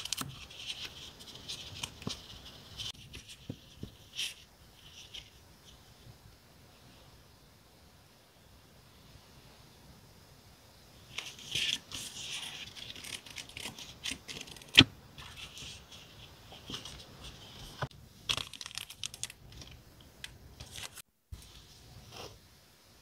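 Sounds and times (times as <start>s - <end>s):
packaging crinkling and rustling: 0.0s - 3.4s, 16.6s - 19.8s.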